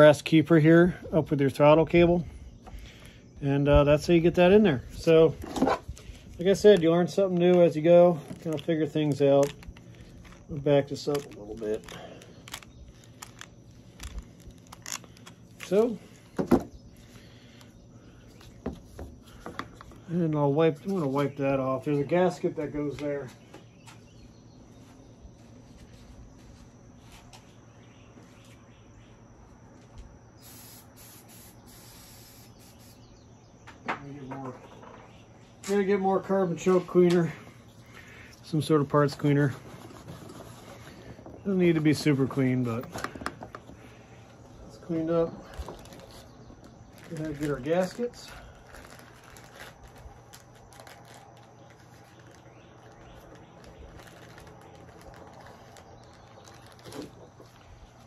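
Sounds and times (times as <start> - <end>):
distant birds calling: 0.0 - 58.0
insects chirping: 0.0 - 58.0
high hiss: 30.4 - 33.2.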